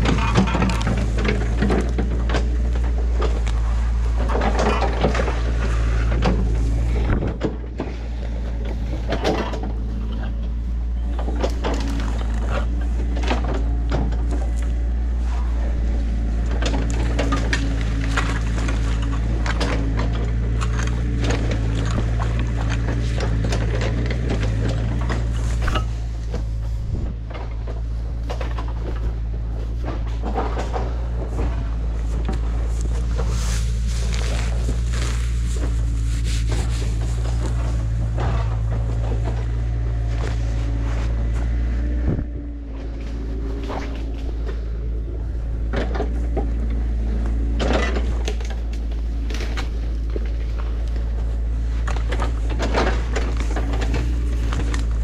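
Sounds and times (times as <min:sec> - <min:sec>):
excavator diesel engine running: 0:00.0 - 0:55.0
grass and brush rustling: 0:00.0 - 0:55.0.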